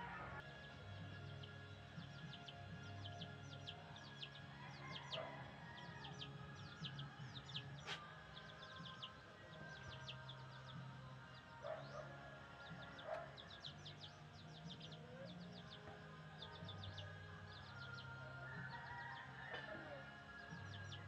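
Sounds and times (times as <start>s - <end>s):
chicks peeping: 0.0s - 21.0s.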